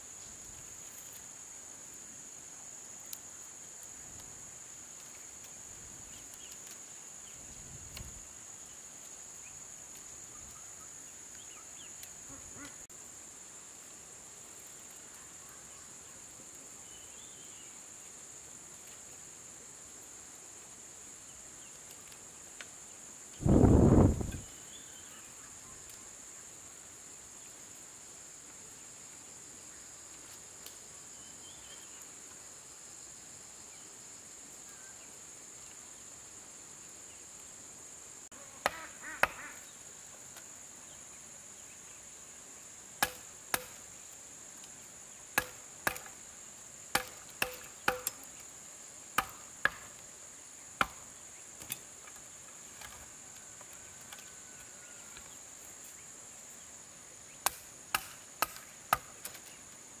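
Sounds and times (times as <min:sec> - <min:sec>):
high drone of insects: 0:00.0 - 1:00.0
hand tool striking wood: 0:38.6 - 0:39.4, 0:43.0 - 0:43.8, 0:45.4 - 0:46.1, 0:46.9 - 0:48.3, 0:49.2 - 0:49.9, 0:57.4 - 0:59.4.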